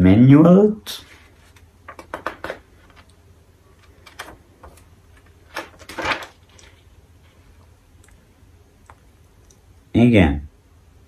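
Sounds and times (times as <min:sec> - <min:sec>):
paper pages rustling: 0:01.0 - 0:03.1, 0:03.8 - 0:07.4.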